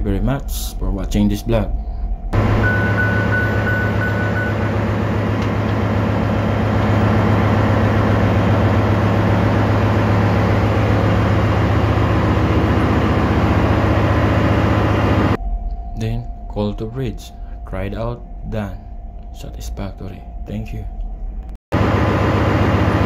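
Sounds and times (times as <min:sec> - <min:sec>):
engine room machinery drone: 0:00.0 - 0:23.0
thin high whistle: 0:02.6 - 0:04.7.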